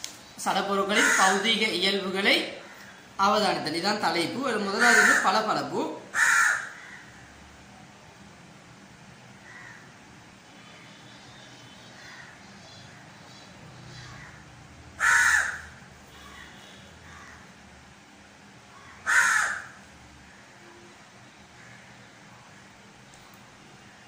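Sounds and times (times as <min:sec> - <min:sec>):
crow cawing: 0:00.8 - 0:01.5, 0:04.7 - 0:05.5, 0:06.1 - 0:07.3, 0:09.4 - 0:10.0, 0:12.0 - 0:13.0, 0:14.0 - 0:17.5, 0:18.7 - 0:20.4, 0:21.6 - 0:22.0.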